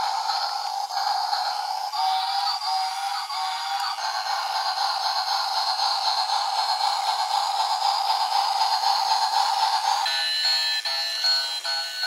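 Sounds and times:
toy train running on track: 0.0 - 12.0.

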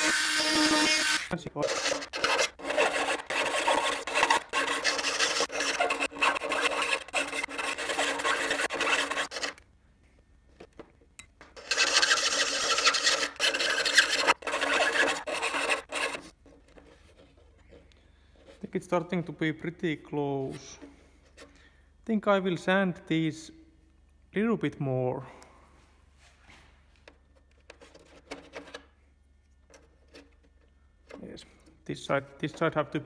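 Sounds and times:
rotary tool grinding: 0.0 - 9.6, 11.6 - 16.9.

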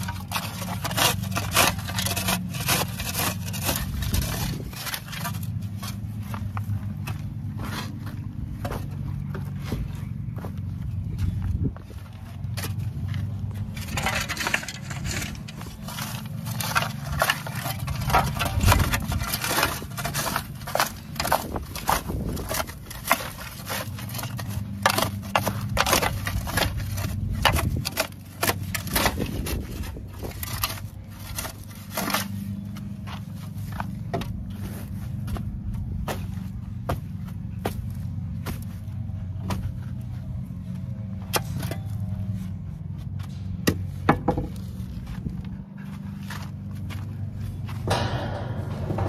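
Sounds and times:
shovel scraping and scooping: 0.0 - 9.8, 12.4 - 35.4
steady low hum: 0.0 - 49.0.

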